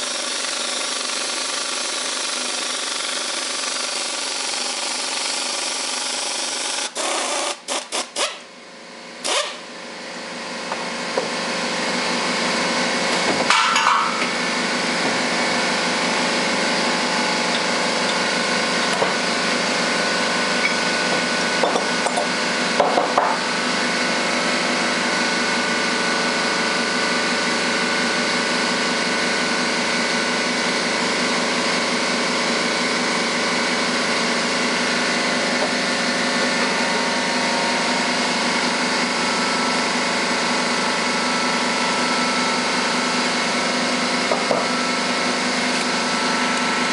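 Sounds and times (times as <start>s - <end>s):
impact wrench hammering: 0.0s - 8.5s, 13.2s - 14.4s, 20.4s - 23.5s
air compressor running: 0.0s - 46.9s.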